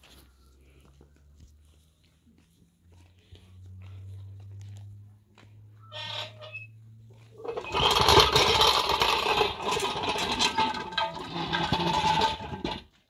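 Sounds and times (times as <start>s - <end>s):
plastic roller rattling over dirt: 7.2s - 13.0s.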